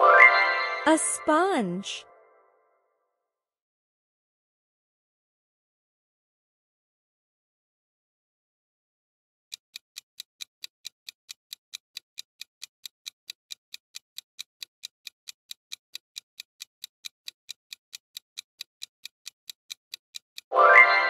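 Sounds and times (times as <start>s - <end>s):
clock ticking: 9.5s - 21.0s.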